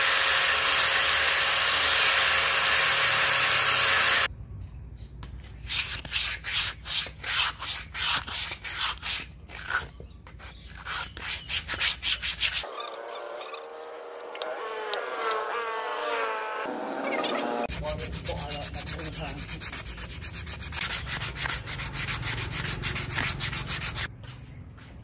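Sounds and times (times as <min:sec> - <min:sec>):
angle grinder sanding wood: 0:00.0 - 0:04.3, 0:11.6 - 0:24.1
sandpaper rubbing on wood: 0:05.7 - 0:12.7, 0:17.7 - 0:24.1.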